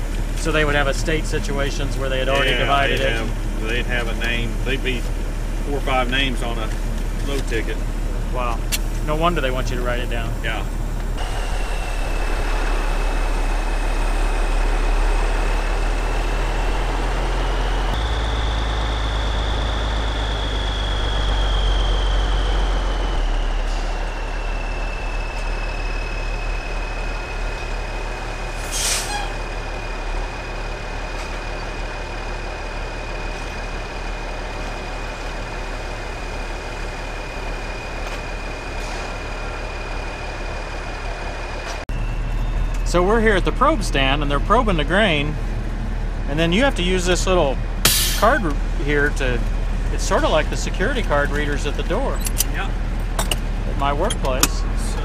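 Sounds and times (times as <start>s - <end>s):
high whine: 0.0s - 6.8s, 7.4s - 45.5s, 46.4s - 55.0s
diesel truck engine running: 0.0s - 55.0s
air brakes hissing: 23.3s - 27.7s, 28.4s - 29.5s, 38.7s - 39.3s, 47.8s - 48.4s.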